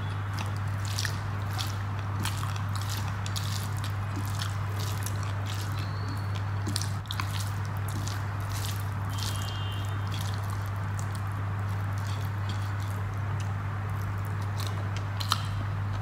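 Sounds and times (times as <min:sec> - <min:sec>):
rice squished by hand: 0:00.0 - 0:15.4
steady low hum: 0:00.0 - 0:16.0
wet chewing and smacking: 0:00.0 - 0:16.0.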